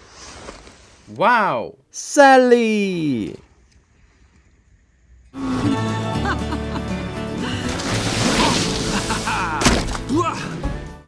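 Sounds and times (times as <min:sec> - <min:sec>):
background music: 0:05.4 - 0:11.0.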